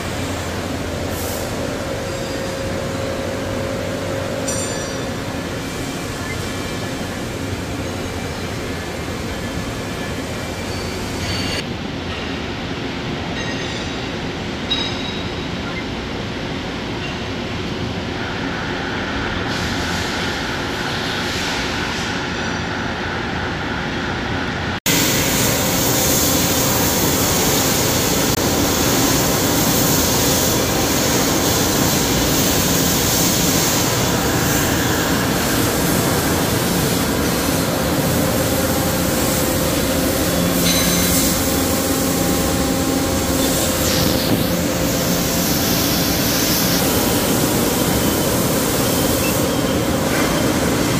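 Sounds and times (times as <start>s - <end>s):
factory machinery hiss: 0.0s - 11.6s, 18.0s - 50.9s
faint machinery hums: 0.0s - 50.9s.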